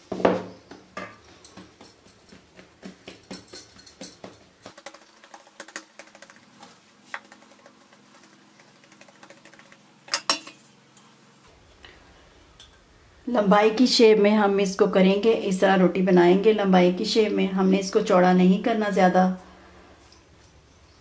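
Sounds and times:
hands patting dough: 0.6 - 10.4.

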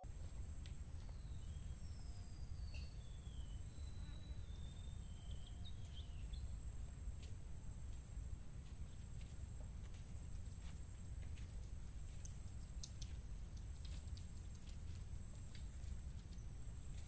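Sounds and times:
bird chirps and whistles: 1.1 - 6.4.

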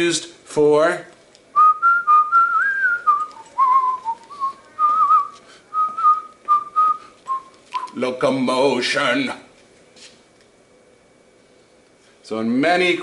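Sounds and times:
person whistling a tune: 1.6 - 8.0.

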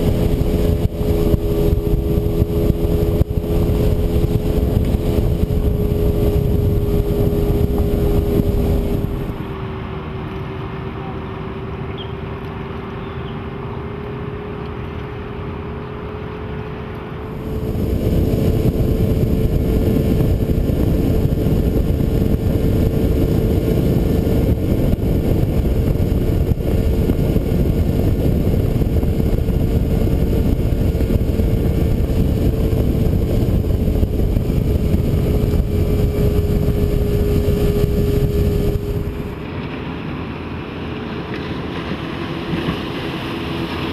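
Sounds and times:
outboard motor humming: 0.0 - 10.6, 11.2 - 39.5
wind and water rushing: 17.3 - 39.6.

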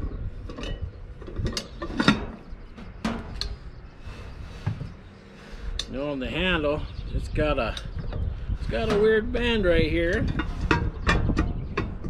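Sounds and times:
lid and handle clanking on iron pot: 0.5 - 3.4, 10.1 - 12.0.

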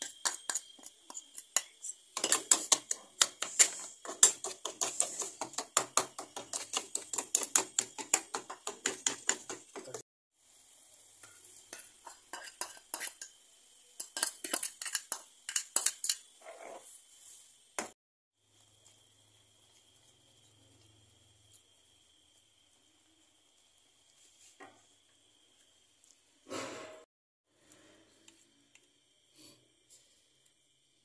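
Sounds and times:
metal spoon stirring in a bowl: 0.0 - 10.0, 11.2 - 13.4, 14.0 - 16.8
faint hiss of boiling: 0.0 - 26.8, 27.5 - 31.0.

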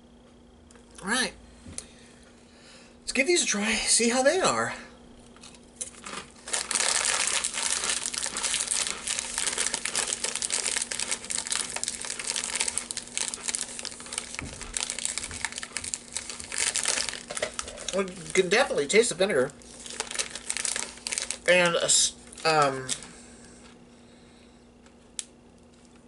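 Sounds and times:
crisps being chewed: 5.2 - 23.8.

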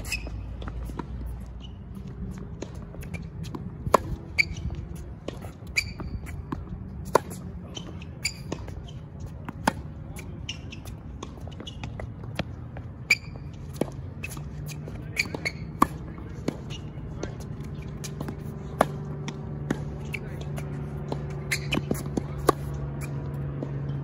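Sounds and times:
sneakers squeaking on court: 0.0 - 24.0
tennis ball bouncing: 0.0 - 24.0
racquet striking tennis ball: 2.6 - 12.5, 13.1 - 23.9.

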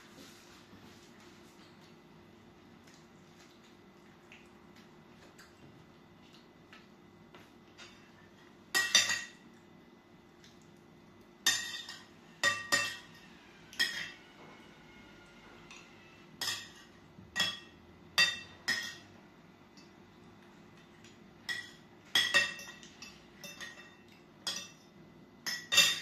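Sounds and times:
cutlery clinking on glass plate: 21.4 - 24.8, 25.5 - 26.0.

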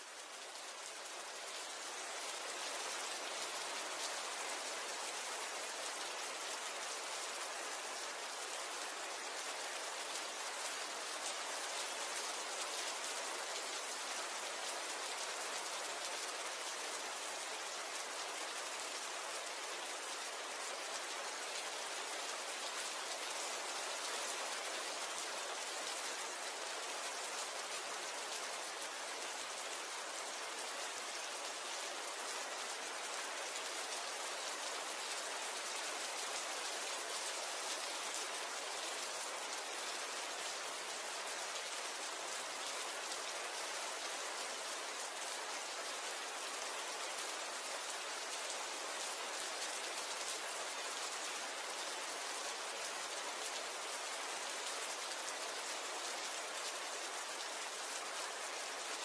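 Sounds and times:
rain falling: 0.0 - 59.0.

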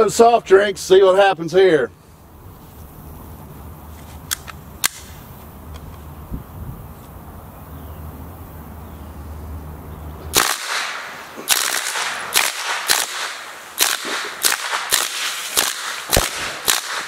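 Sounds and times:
suppressed machine gun shots: 10.4 - 17.0.

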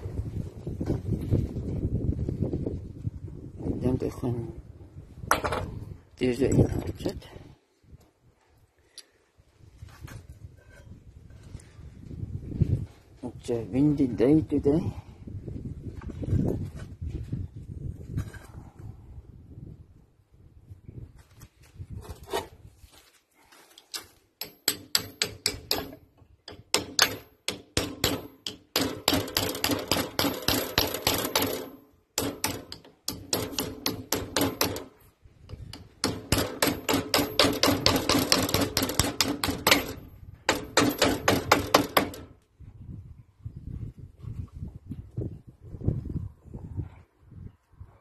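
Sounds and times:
hammer tapping steel: 24.4 - 34.9, 35.8 - 42.2.

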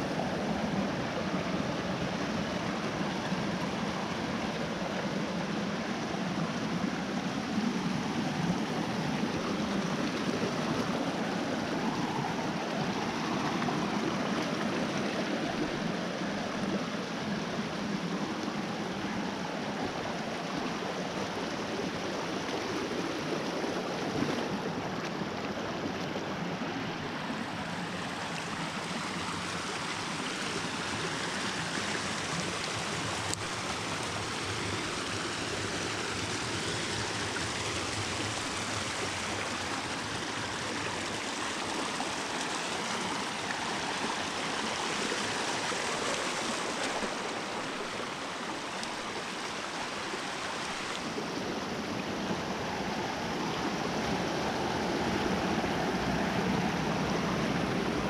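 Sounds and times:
small waterfall: 0.0 - 58.0
stream running over stones: 0.0 - 58.0.

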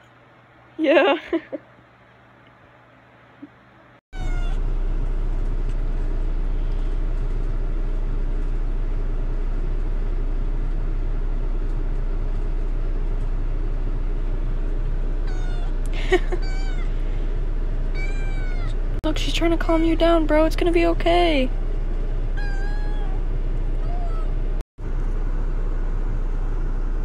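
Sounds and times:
kittens meowing: 4.2 - 4.6, 15.2 - 17.0, 17.9 - 18.8, 22.4 - 23.2, 23.8 - 24.3
low steady rumble: 4.2 - 27.0.

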